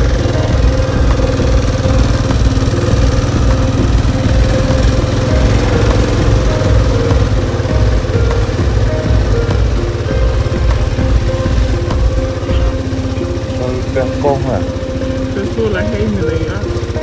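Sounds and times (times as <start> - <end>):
motorbike engine running: 0.0 - 17.0.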